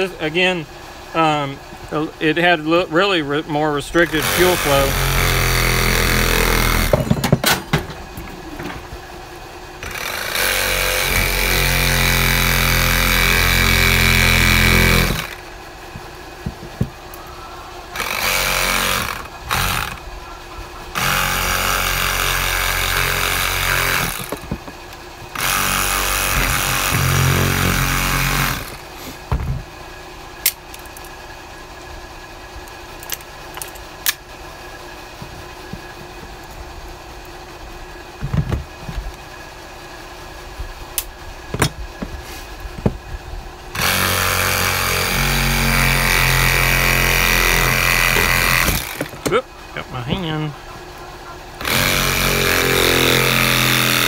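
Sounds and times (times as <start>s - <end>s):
reciprocating saw cutting plastic: 4.0s - 7.0s, 9.8s - 17.3s, 17.9s - 20.1s, 20.9s - 29.3s, 43.8s - 49.4s, 51.6s - 54.0s.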